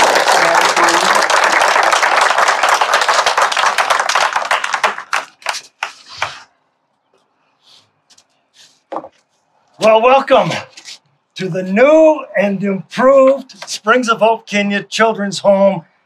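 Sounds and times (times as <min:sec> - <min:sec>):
crowd applauding: 0:00.0 - 0:06.0.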